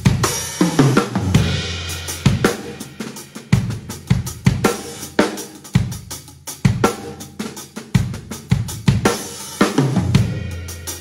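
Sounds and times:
drum kit playing groove: 0:00.0 - 0:11.0.

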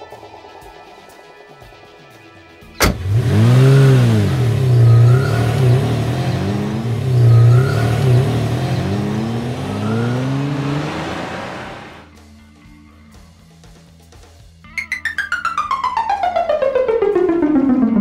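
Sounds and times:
car engine revving: 0:02.8 - 0:12.1.

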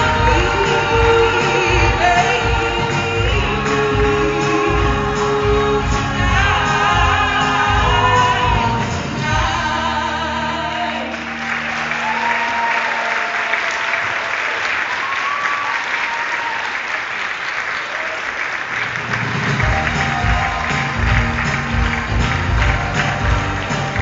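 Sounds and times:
audience applauding: 0:00.0 - 0:09.5, 0:11.0 - 0:24.0
music: 0:00.0 - 0:14.2, 0:18.9 - 0:24.0.

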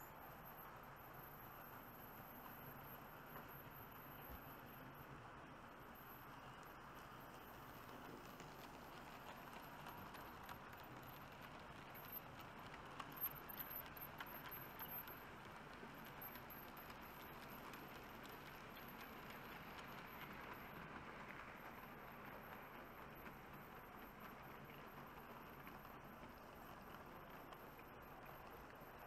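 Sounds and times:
model wagon wheels rattling on rails: 0:07.0 - 0:29.0.

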